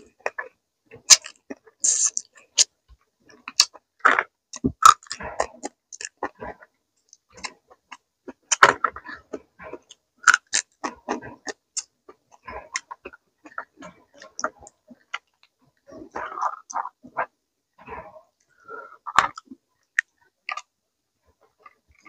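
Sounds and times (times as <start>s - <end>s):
sucking fingers: 0.0s - 2.7s
chewing food: 0.0s - 20.8s.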